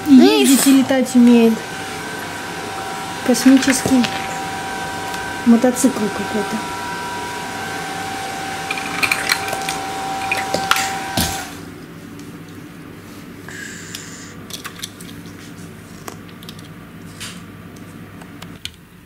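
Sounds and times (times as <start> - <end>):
machine whine: 0.0 - 12.0.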